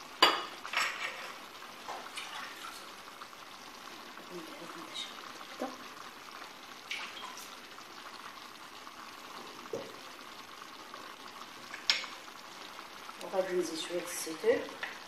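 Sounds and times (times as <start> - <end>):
meat sizzling in a pot: 0.0 - 15.0.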